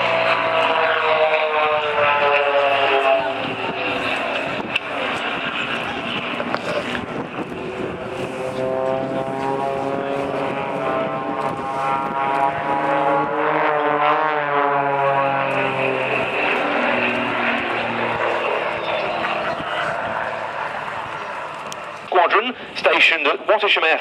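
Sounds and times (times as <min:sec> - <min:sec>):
propeller aircraft engines droning: 0:00.0 - 0:24.0.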